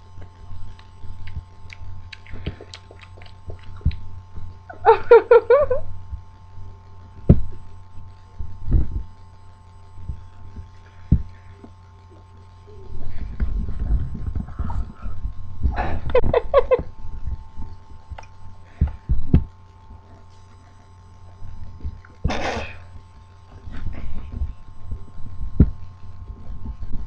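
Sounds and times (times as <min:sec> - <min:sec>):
faint electrical hum: 0:00.0 - 0:27.0
crunchy chewing: 0:00.2 - 0:04.7
person humming: 0:12.6 - 0:13.3.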